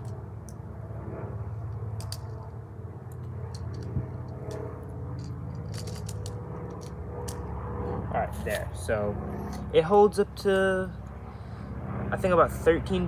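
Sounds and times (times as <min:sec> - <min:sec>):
low motor hum: 0:00.0 - 0:13.0
bbs clicking into magazine: 0:05.2 - 0:07.4.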